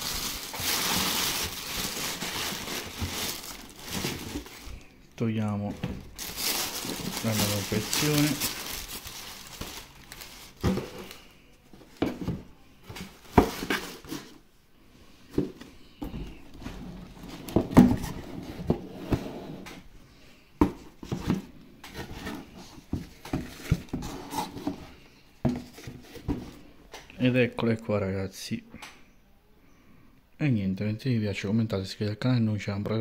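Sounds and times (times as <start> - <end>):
tissue paper rustling: 0.0 - 4.9, 6.0 - 11.2.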